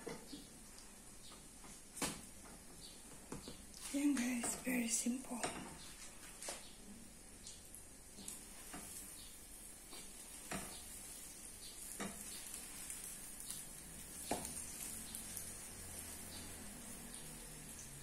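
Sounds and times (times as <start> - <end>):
food sizzling in a frying pan: 0.0 - 18.0
spatula tapping and scraping pan: 8.2 - 9.2, 9.8 - 13.6, 14.2 - 14.8.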